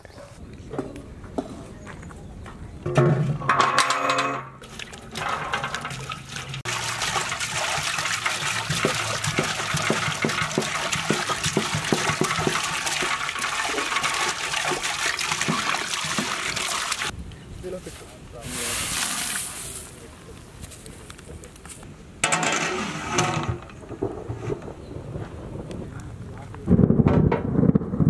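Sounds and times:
water pouring into metal pot: 4.6s - 17.1s.

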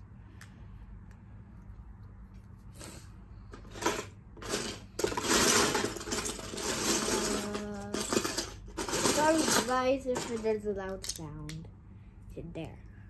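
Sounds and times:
plastic bricks clattering: 3.5s - 11.3s.

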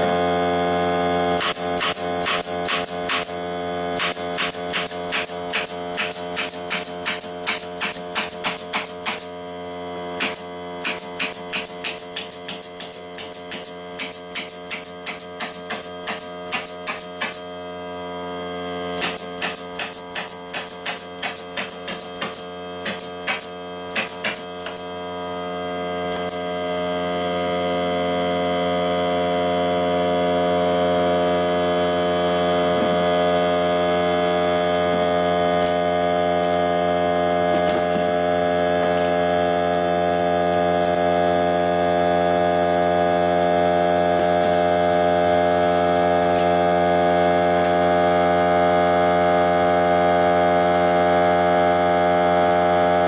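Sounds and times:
air compressor running: 0.0s - 53.0s
pneumatic nailer firing: 1.3s - 9.4s, 10.1s - 17.5s, 18.9s - 24.9s, 26.1s - 26.5s, 34.7s - 41.5s, 43.9s - 48.8s.

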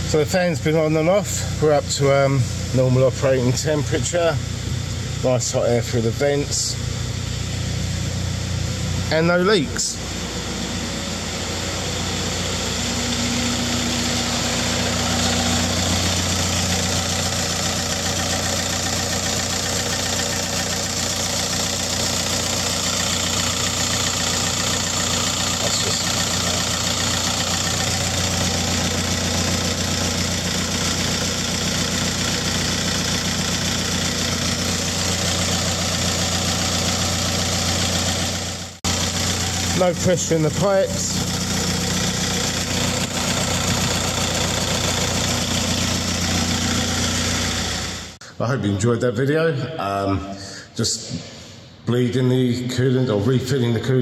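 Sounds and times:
diesel engine idling: 0.0s - 48.3s.

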